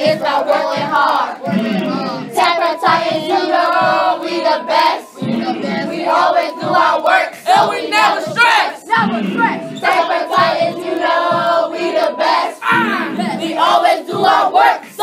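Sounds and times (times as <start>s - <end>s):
backing music: 0.0s - 15.0s
young voices chanting and shouting: 0.0s - 15.0s.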